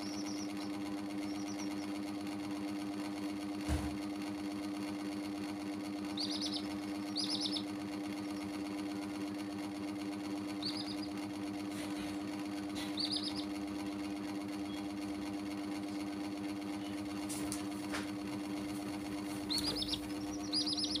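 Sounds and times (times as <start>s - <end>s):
baby chicks peeping: 0.0s - 2.8s, 5.8s - 15.0s, 18.8s - 21.0s
low mechanical hum: 0.0s - 21.0s.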